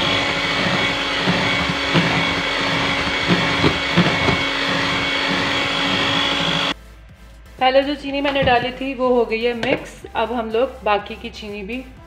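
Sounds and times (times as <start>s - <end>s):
electric hand mixer whipping: 0.0s - 6.8s.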